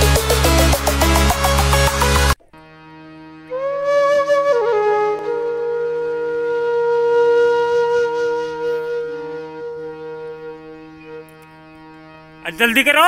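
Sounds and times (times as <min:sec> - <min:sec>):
flute-like wind instrument: 0:03.4 - 0:11.4.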